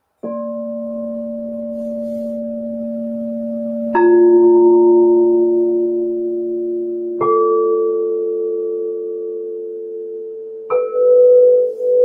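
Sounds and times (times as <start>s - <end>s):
singing bowls ringing: 0.2s - 12.0s.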